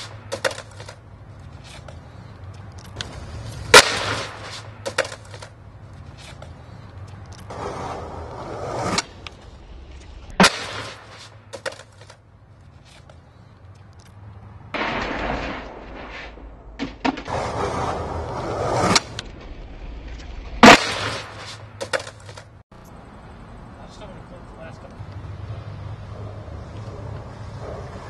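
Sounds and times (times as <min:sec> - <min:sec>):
skateboard cracking and clattering: 0:00.0 - 0:01.0, 0:02.9 - 0:05.6, 0:10.3 - 0:12.2, 0:14.8 - 0:22.6
skateboard wheels rolling on concrete: 0:00.0 - 0:28.0
rider slamming down on concrete: 0:14.8 - 0:17.6.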